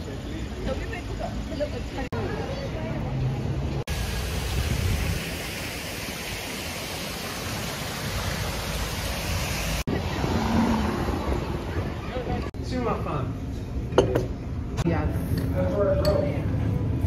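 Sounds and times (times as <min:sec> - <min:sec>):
wind blowing over microphone: 0:04.3 - 0:05.5.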